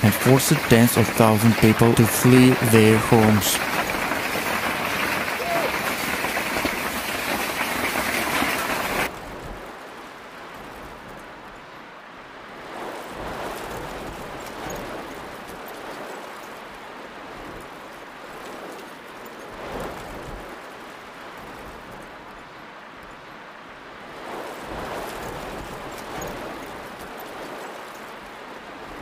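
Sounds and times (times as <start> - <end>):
heavy rain hissing: 0.0 - 9.1
wind gusting: 0.0 - 29.0.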